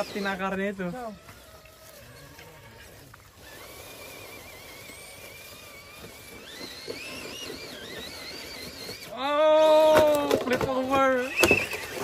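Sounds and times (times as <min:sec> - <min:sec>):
electric motor whining: 0:00.0 - 0:12.0
tyres knocking on roots and dirt: 0:09.7 - 0:12.0.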